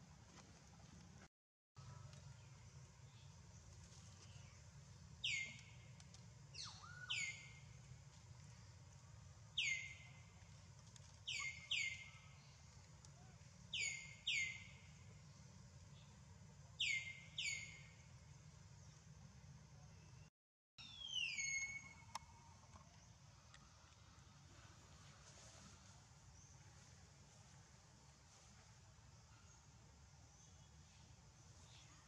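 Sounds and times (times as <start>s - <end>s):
bird chirping: 2.0s - 7.8s, 9.5s - 10.5s, 11.1s - 16.2s, 16.8s - 18.1s, 20.0s - 23.2s.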